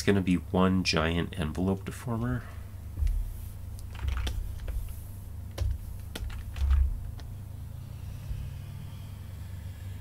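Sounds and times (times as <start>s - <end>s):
steady low hum: 0.0s - 10.0s
computer keyboard keys clicking: 3.8s - 4.8s, 5.6s - 7.3s.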